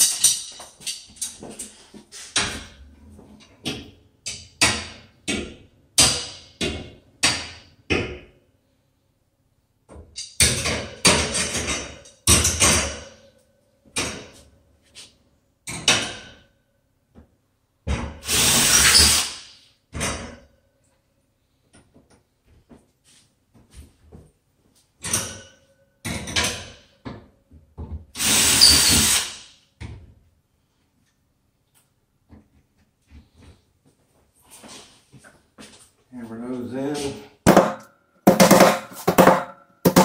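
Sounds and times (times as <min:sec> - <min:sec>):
sharp knocks: 0:37.5 - 0:40.0.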